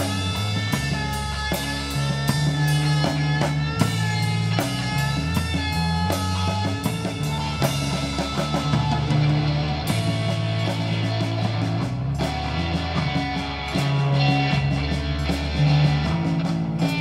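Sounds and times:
drum kit steady beat: 0.0 - 17.0
guitar sustained notes: 0.0 - 17.0.

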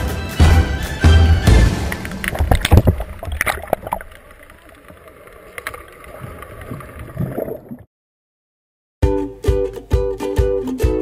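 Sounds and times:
water splashing and churning: 1.6 - 7.9.

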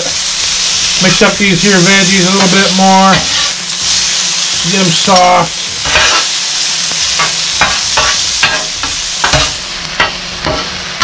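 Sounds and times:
vegetables sizzling: 0.0 - 11.0
metal spatulas scraping on griddle: 2.4 - 3.7, 5.8 - 6.4, 7.1 - 10.8.

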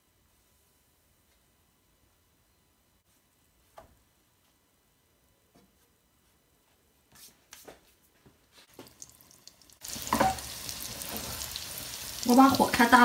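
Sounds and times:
buns sizzling in hot oil: 8.7 - 13.0.

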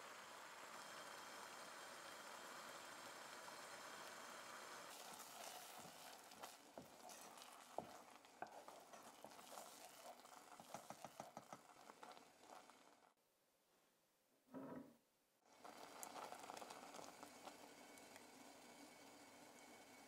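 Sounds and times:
wooden spoon stirring in pot: 4.9 - 13.1.

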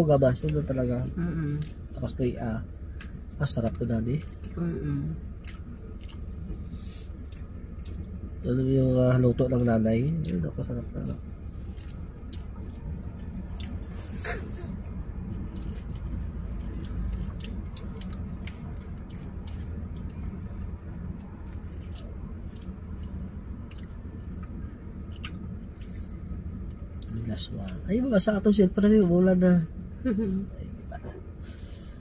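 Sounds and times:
low hum in car cabin: 0.0 - 32.0
person chewing: 5.2 - 8.2, 9.6 - 26.1.

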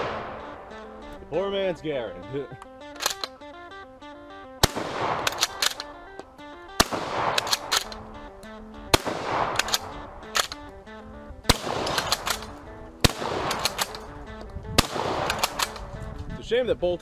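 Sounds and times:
rifle shots with echo: 0.0 - 1.2, 4.4 - 16.1
rifle bolt clacking: 0.0 - 1.3, 2.5 - 16.4
background music: 0.0 - 17.0.

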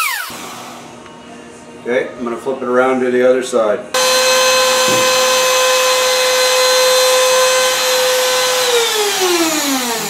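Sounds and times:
router motor whine: 4.0 - 10.0.

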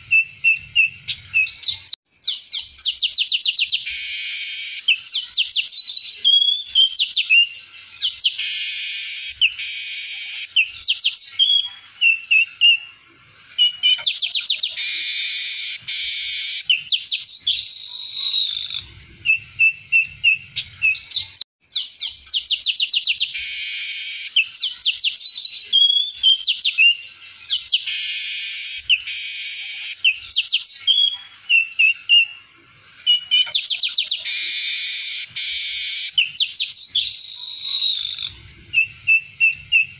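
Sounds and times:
weaver bird singing: 0.0 - 32.4, 33.0 - 39.9.

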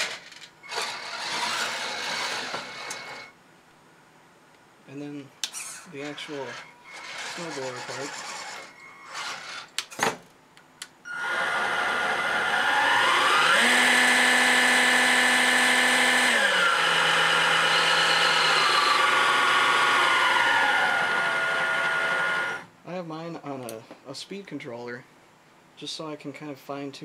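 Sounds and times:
electric motor whining: 0.0 - 3.4, 6.0 - 9.7, 11.1 - 22.7.

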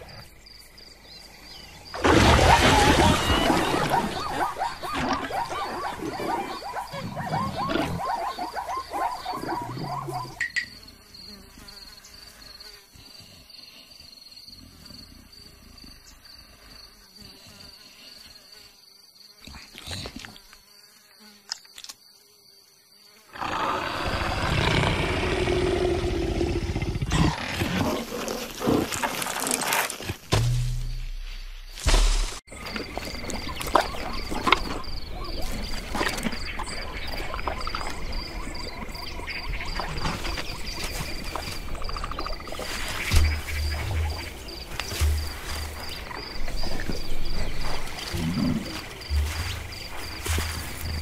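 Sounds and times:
insects buzzing: 0.0 - 51.0.

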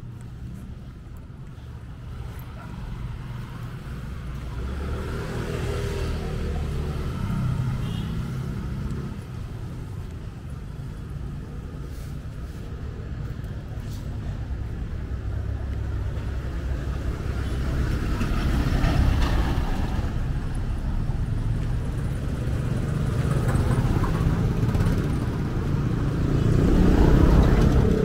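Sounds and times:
background traffic rumble: 0.0 - 28.0
vehicle engine passing: 2.1 - 10.0, 13.8 - 28.0.

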